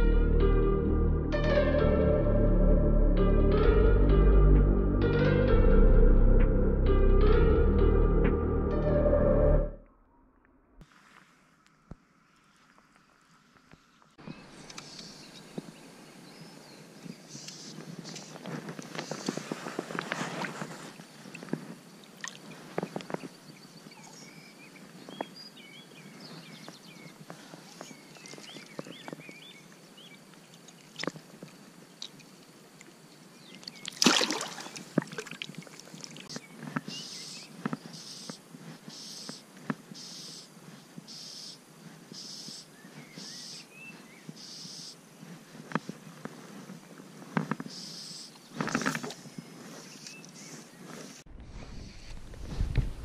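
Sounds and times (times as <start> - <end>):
water sloshing and splashing: 20.0 - 22.5, 33.6 - 36.3.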